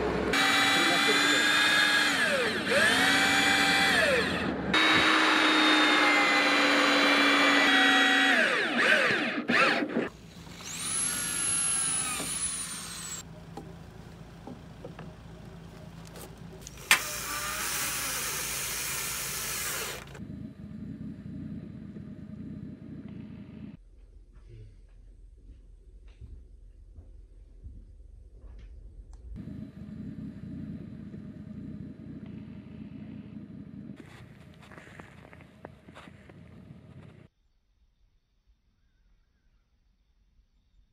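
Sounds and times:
electric drill driving screws: 0:00.3 - 0:13.2, 0:16.6 - 0:20.2.

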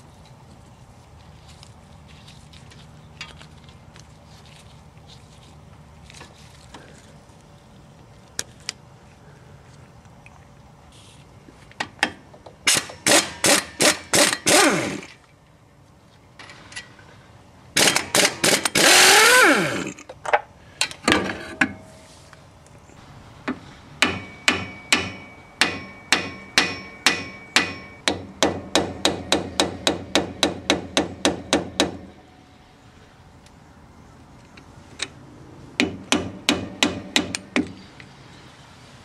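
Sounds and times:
hammer striking metal: 0:24.0 - 0:32.0.

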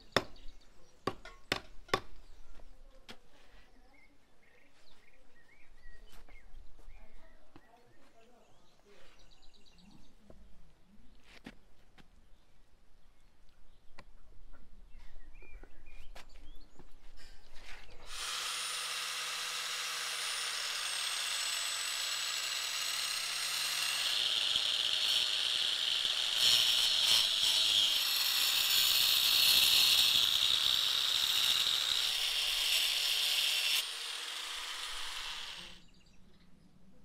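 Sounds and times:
angle grinder cutting meat: 0:18.0 - 0:35.8.

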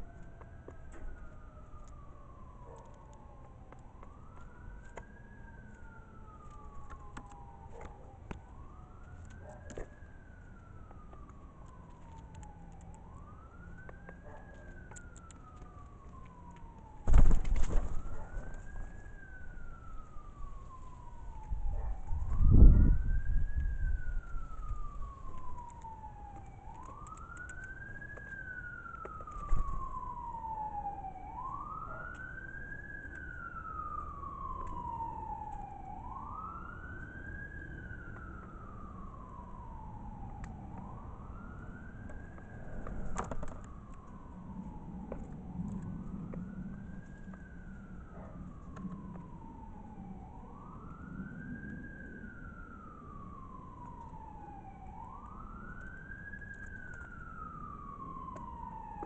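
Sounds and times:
emergency vehicle siren wailing: 0:00.0 - 0:59.0.

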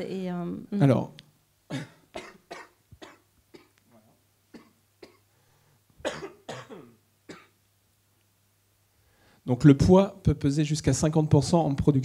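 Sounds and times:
man coughing into microphone: 0:01.7 - 0:03.7, 0:04.5 - 0:05.2, 0:06.0 - 0:07.6.

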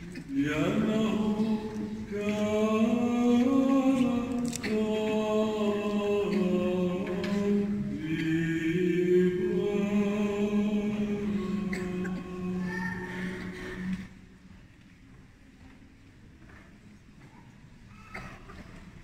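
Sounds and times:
men chanting in a church: 0:00.0 - 0:14.2.

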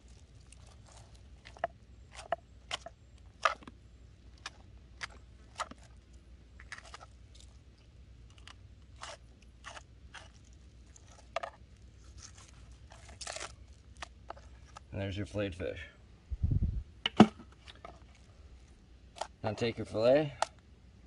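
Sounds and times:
knife crunching through fish bones: 0:00.0 - 0:03.7, 0:04.4 - 0:07.6, 0:08.3 - 0:14.9.

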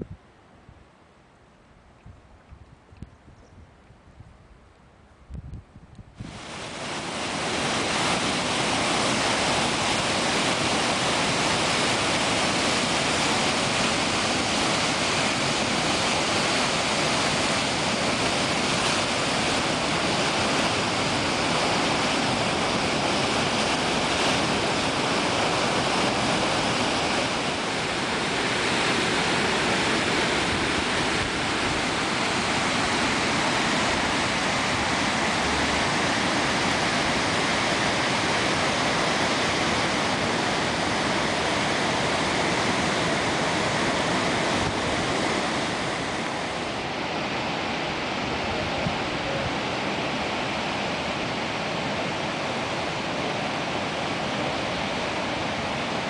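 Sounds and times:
white water rushing over weir: 0:06.2 - 0:56.0.

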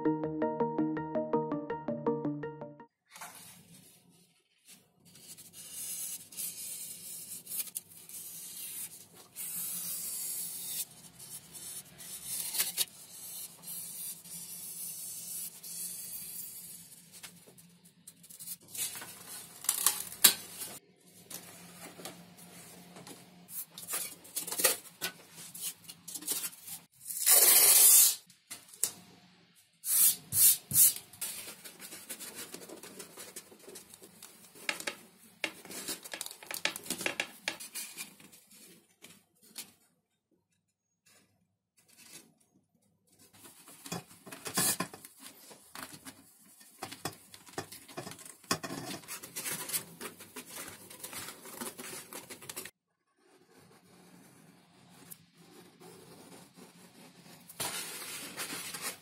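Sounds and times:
craft knife slicing paper: 0:05.1 - 0:16.8, 0:25.5 - 0:28.2
paper and foam rustling: 0:31.2 - 0:34.6, 0:48.9 - 0:52.7, 0:55.7 - 0:59.0.

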